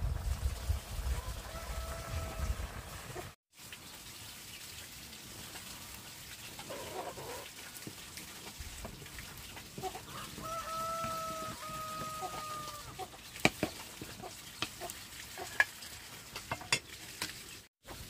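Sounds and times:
chicken calling: 9.8s - 13.2s.

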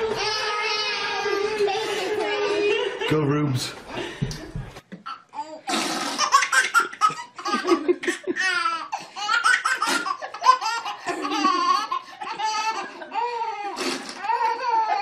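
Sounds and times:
baby laughing: 5.0s - 15.0s.

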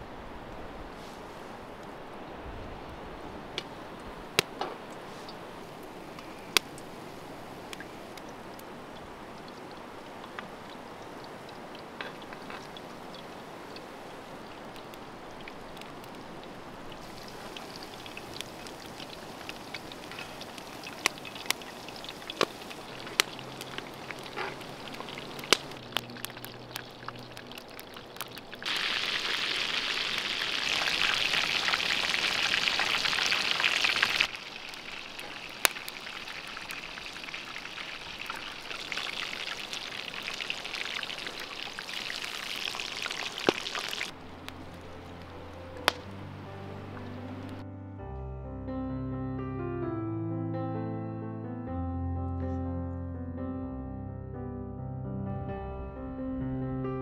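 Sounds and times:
oil popping and clicking: 7.7s - 44.6s
meat deep-frying in oil: 7.7s - 46.0s.

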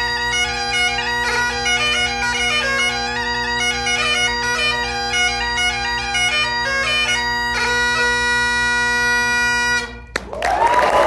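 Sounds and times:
bagpipe playing over drones: 0.0s - 10.1s
audience applause: 10.2s - 11.0s.

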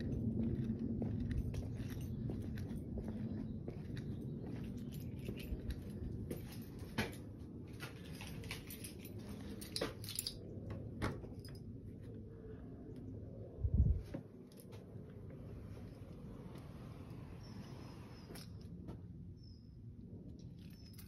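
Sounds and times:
footsteps: 0.0s - 10.1s.

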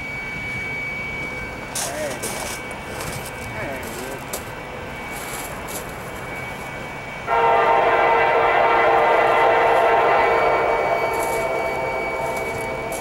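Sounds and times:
locomotive air horn chord: 7.3s - 13.0s.

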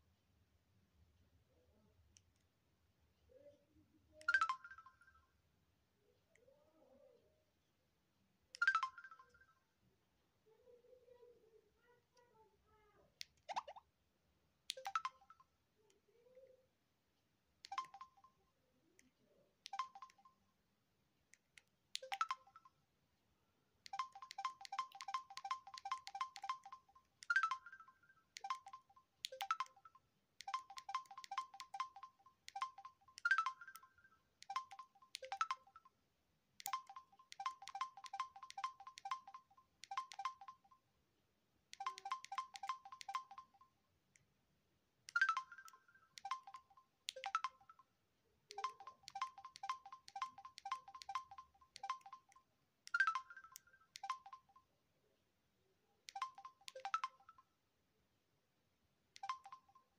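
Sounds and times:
phone keypad beeps: 13.5s - 13.8s, 14.7s - 15.5s, 17.6s - 18.4s, 19.7s - 20.4s, 22.0s - 22.7s, 23.9s - 36.0s, 36.6s - 40.8s, 41.8s - 43.7s, 45.1s - 47.9s, 48.5s - 54.6s, 56.1s - 57.5s, 59.2s - 59.9s
higher-pitched keypad tone: 24.0s - 29.8s, 30.5s - 33.9s, 34.5s - 35.8s, 36.6s - 40.7s, 41.8s - 43.6s, 45.2s - 47.7s, 48.5s - 52.4s, 53.0s - 54.5s.

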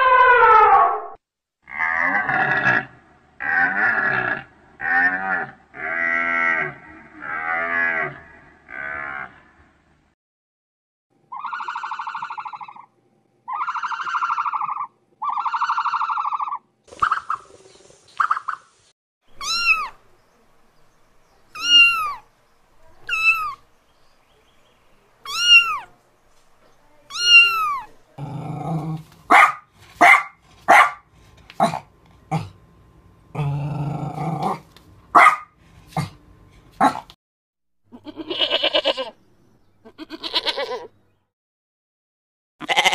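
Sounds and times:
cow mooing: 1.7s - 9.5s
short harsh animal calls: 11.3s - 12.9s, 13.5s - 17.4s, 19.3s - 20.1s, 21.5s - 23.6s, 25.2s - 26.0s, 27.1s - 28.0s
long buzzy animal calls: 11.3s - 17.5s, 19.3s - 20.1s, 21.5s - 23.6s, 25.2s - 26.0s, 27.1s - 28.0s, 39.8s - 40.9s, 42.6s - 42.9s
cat meowing: 19.4s - 20.0s, 21.6s - 22.2s, 23.0s - 23.6s, 25.2s - 26.0s, 27.1s - 28.0s, 39.9s - 40.9s, 42.6s - 42.9s.

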